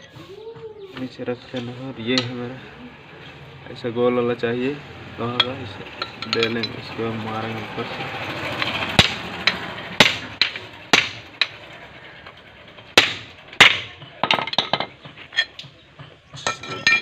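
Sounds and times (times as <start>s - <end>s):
hammer striking steel pipe: 9.0s - 11.6s, 13.0s - 15.6s.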